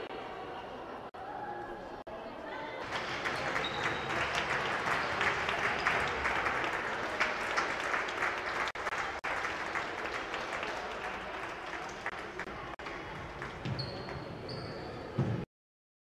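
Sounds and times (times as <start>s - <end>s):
crowd applause: 2.8s - 13.7s.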